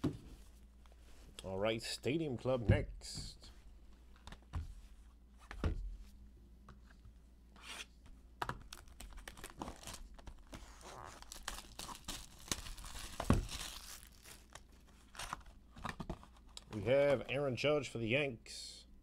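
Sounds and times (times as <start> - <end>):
plastic wrap crackling: 8.6 - 15.4.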